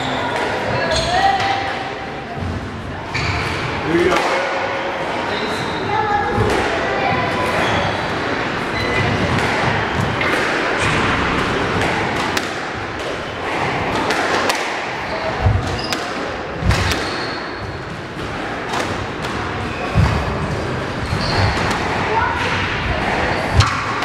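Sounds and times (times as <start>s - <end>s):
squash ball off rackets: 9.2s - 22.6s.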